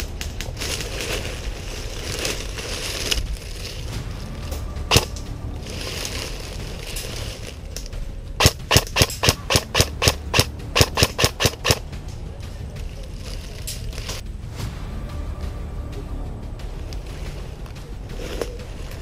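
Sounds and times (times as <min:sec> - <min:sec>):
airsoft rifle shots: 0:08.4 - 0:11.8.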